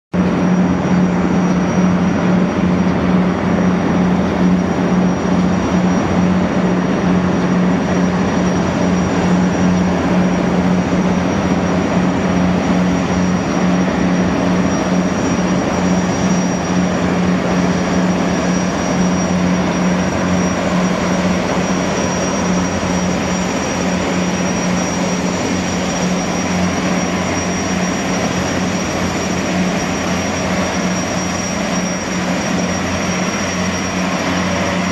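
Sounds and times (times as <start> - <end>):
gas turbines running: 0.1 - 34.9.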